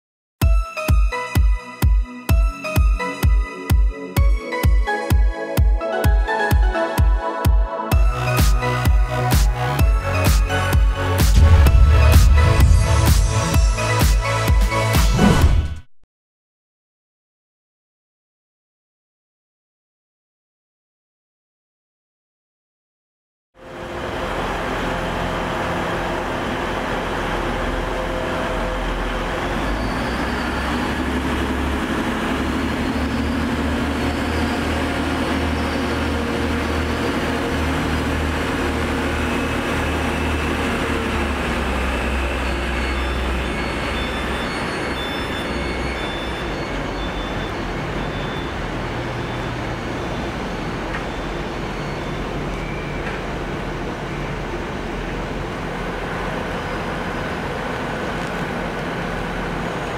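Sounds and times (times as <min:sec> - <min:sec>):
passenger train rumbling: 0:08.0 - 0:15.0, 0:23.6 - 0:59.9.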